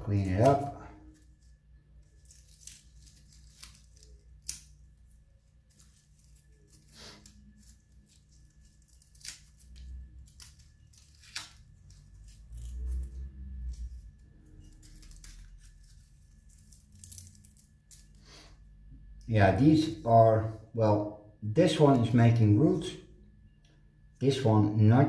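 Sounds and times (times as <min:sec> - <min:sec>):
dry roots rustling: 0:00.0 - 0:18.3.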